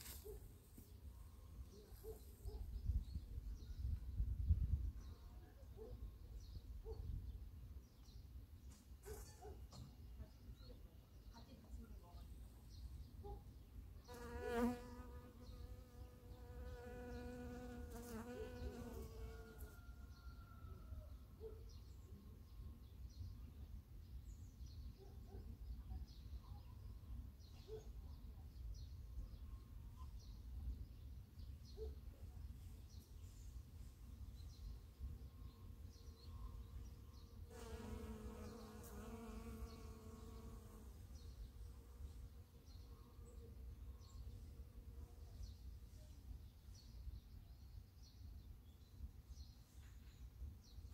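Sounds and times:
honeybee buzzing: 0:14.1 - 0:19.5, 0:37.5 - 0:41.0.

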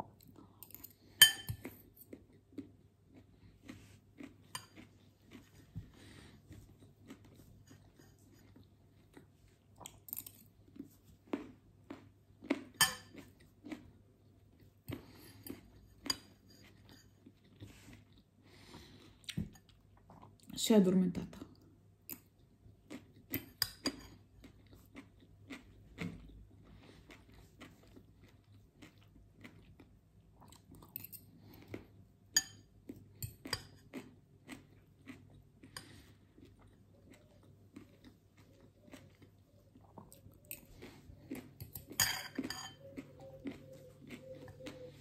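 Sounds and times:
close-up chewing and crunching: 0:00.0 - 0:20.6, 0:21.3 - 0:45.0
spoon scraping glass bowl: 0:41.6 - 0:42.8.

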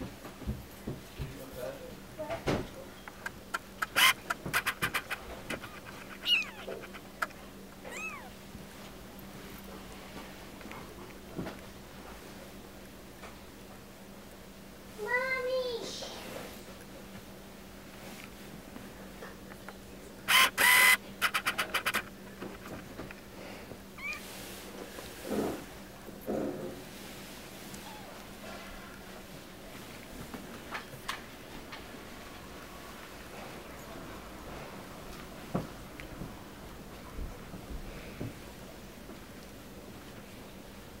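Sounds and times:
clicks and scratchy rustles on towel: 0:03.2 - 0:07.4
kitten mewing: 0:03.8 - 0:08.4, 0:24.0 - 0:24.3
sharp clicks: 0:20.3 - 0:22.1.

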